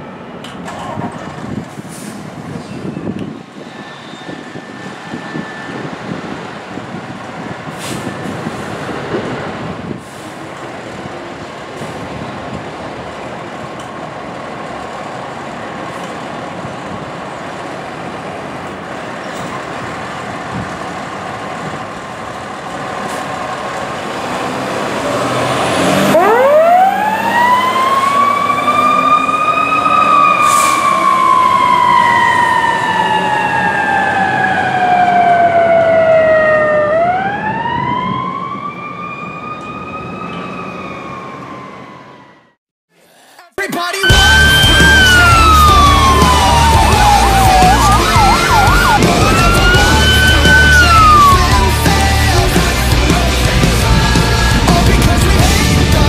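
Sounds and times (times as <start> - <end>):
fire engine diesel engine: 0.0 - 42.6, 44.1 - 56.0
siren wailing: 3.6 - 6.5, 25.8 - 42.6, 44.0 - 52.6
short air hisses: 7.8 - 8.7.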